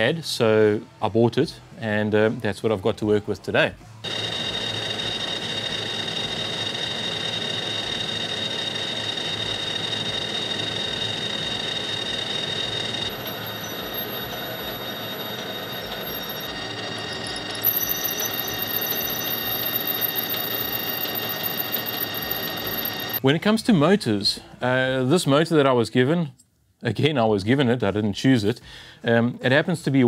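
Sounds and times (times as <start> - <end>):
high squeal of drill boring: 4.0 - 23.2
metal lathe running: 4.0 - 23.2.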